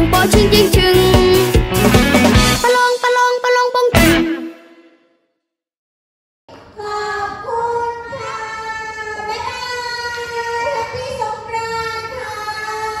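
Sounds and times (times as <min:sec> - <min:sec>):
child singing: 0:00.0 - 0:01.6, 0:02.6 - 0:04.5.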